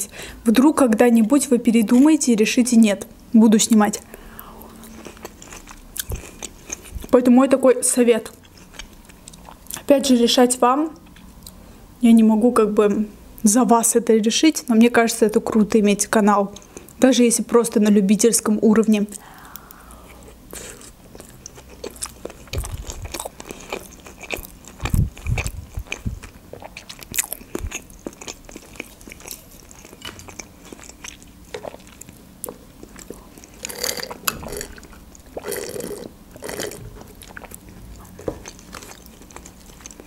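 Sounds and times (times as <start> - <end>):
close chewing: 20.1 - 40.0.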